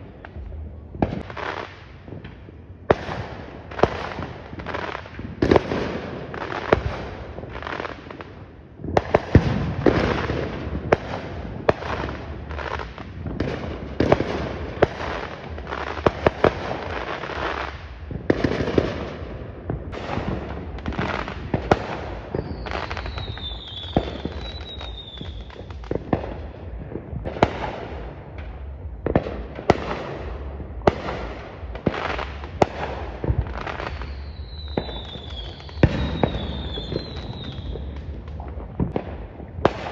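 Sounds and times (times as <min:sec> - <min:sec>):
crackling rumble: 0:00.0 - 0:39.9
firework bangs and booms: 0:00.0 - 0:39.9.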